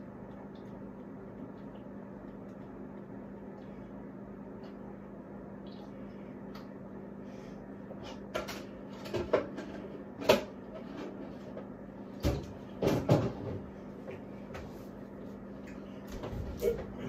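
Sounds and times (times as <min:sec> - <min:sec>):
steady low hum: 0:00.0 - 0:17.0
kitchen knocks and clunks: 0:12.2 - 0:13.7.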